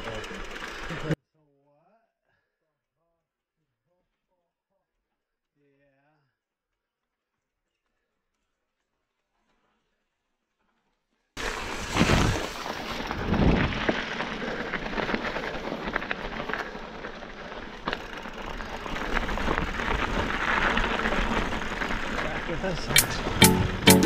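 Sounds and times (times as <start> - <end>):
bike clicking and rattling: 0.0 - 1.2, 12.6 - 24.0
bike tyres crunching over ground: 0.0 - 1.2, 11.4 - 23.8.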